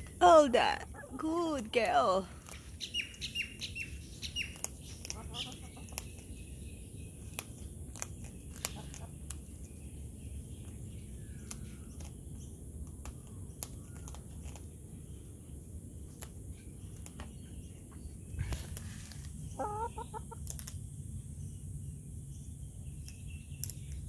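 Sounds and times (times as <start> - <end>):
cockatoo crunching biscuit: 2.4 - 6.4, 7.2 - 9.8.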